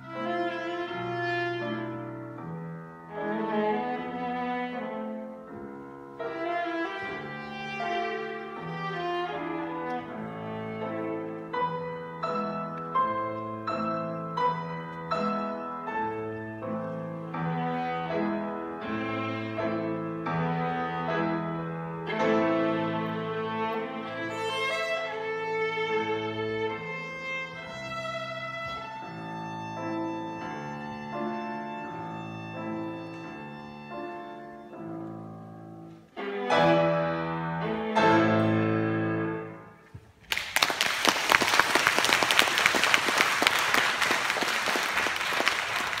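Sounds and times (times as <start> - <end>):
viola: 0.0 - 40.1
piano: 0.0 - 46.0
audience applause: 40.2 - 46.0.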